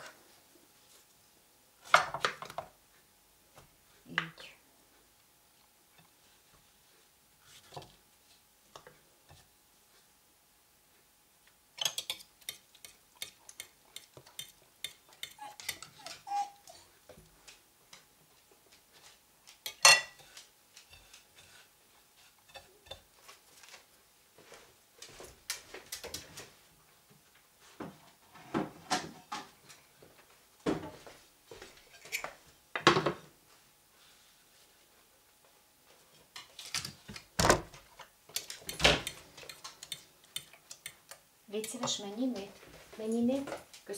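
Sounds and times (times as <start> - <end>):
fork clinking on porcelain plates: 11.8 - 16.5, 19.6 - 21.2.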